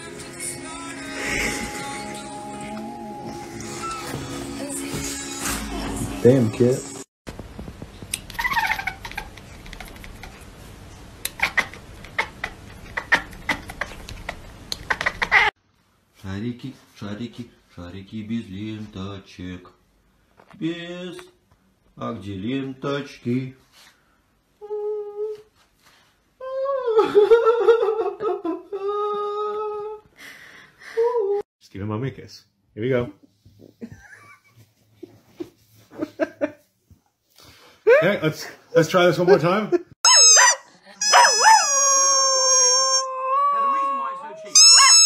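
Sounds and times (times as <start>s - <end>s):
cat yowling: 40.1s - 45.0s.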